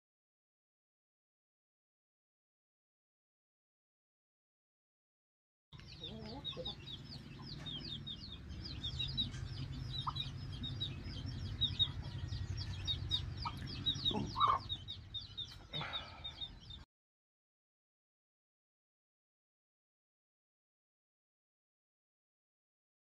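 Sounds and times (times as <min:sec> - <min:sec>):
low steady hum: 0:05.8 - 0:16.4
chicken clucking: 0:05.8 - 0:16.8
chickens chirping and peeping: 0:05.8 - 0:16.8.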